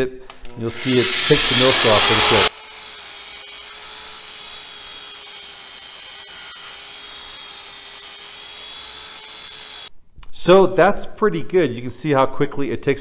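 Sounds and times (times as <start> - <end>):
abrasive tool motor whine: 0.6 - 9.9.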